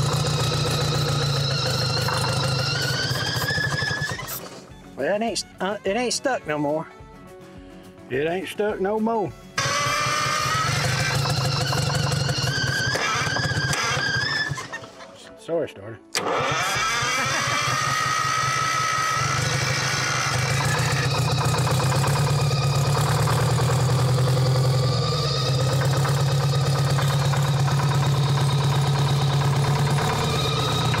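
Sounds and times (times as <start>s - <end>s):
diesel engine starting and running: 0.0s - 4.7s, 9.6s - 15.3s, 16.1s - 31.0s.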